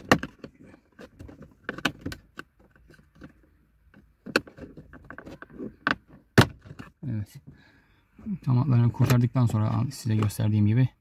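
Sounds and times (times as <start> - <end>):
hard plastic clicks and creaks: 0.0 - 7.0.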